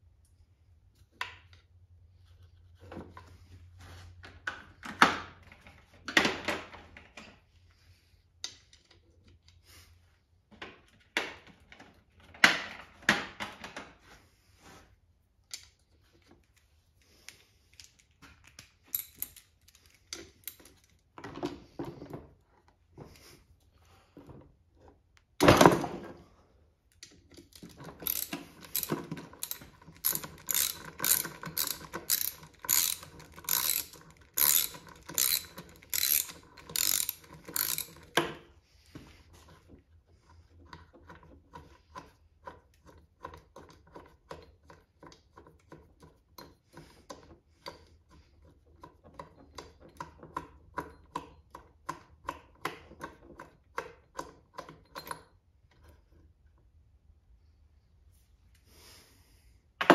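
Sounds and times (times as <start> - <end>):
ratchet wrench clicking: 18.9 - 20.7, 27.4 - 38.2.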